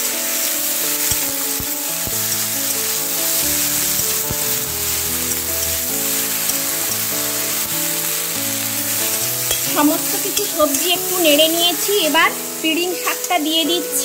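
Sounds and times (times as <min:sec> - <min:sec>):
background music: 0:00.0 - 0:14.0
vegetables sizzling in hot oil: 0:00.0 - 0:14.0.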